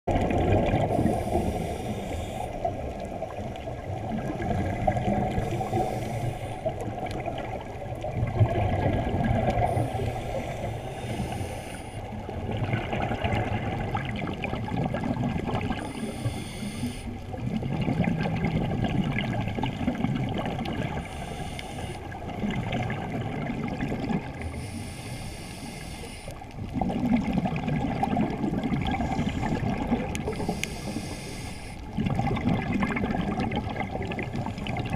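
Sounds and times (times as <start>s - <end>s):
bubbling exhalations underwater: 0.1s - 1.3s, 6.9s - 10.0s, 17.4s - 21.0s, 22.3s - 24.4s, 26.6s - 30.4s, 31.9s - 34.9s
diver inhaling through regulator: 0.8s - 2.8s, 5.3s - 6.9s, 9.6s - 12.4s, 15.8s - 17.3s, 20.9s - 22.3s, 24.4s - 26.5s, 28.9s - 32.0s.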